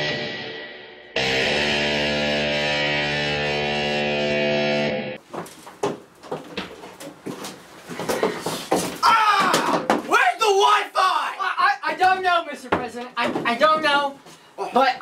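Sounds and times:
held guitar chord: 0.0 - 5.2
knocks and thumps: 5.3 - 10.2, 12.7 - 14.0.

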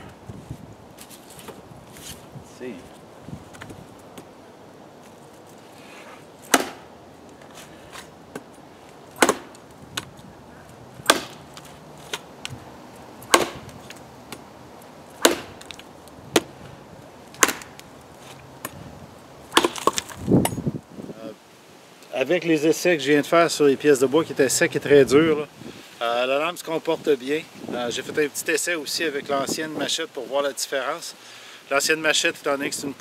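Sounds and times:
machete chopping log: 6.5 - 6.9, 9.2 - 10.1, 11.0 - 12.2, 13.2 - 14.4, 15.2 - 16.6, 17.4 - 17.8, 19.5 - 20.6.

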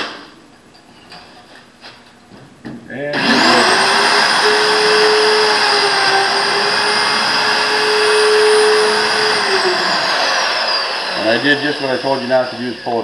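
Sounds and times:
electric router cutting metal: 3.1 - 13.0.

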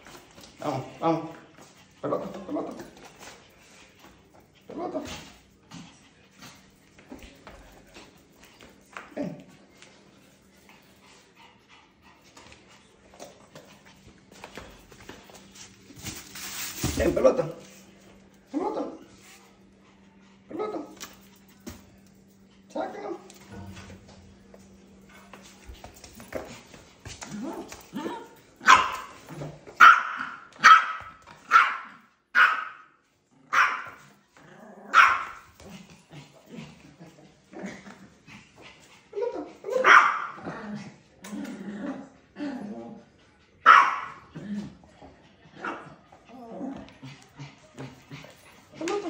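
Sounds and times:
small dog barking: 28.0 - 29.1, 29.8 - 32.9, 33.5 - 34.0, 34.9 - 35.4, 39.7 - 40.4, 43.6 - 44.2.

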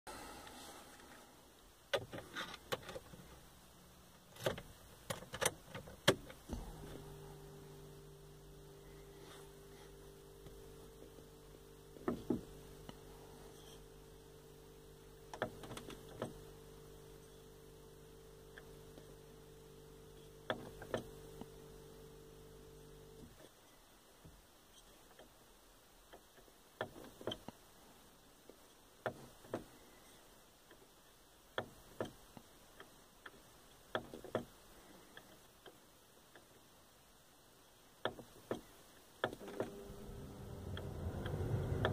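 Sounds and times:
steady hum: 6.3 - 23.2, 39.4 - 41.9.

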